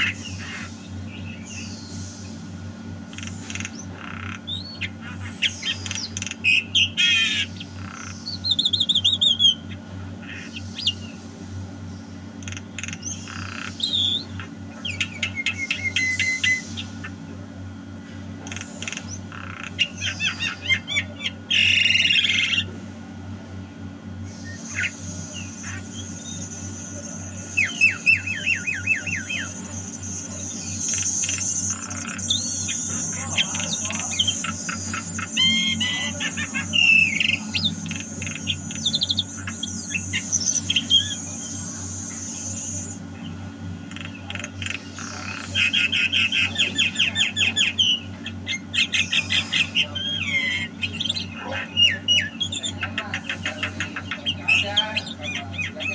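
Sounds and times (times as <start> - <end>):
bird whistling and squawking: 3.5 - 11.2, 12.5 - 17.2, 24.3 - 43.1, 43.9 - 55.9.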